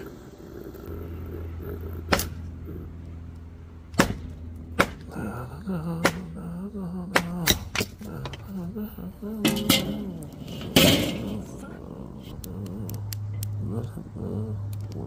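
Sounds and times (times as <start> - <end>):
hatchet chopping into log: 3.9 - 5.1.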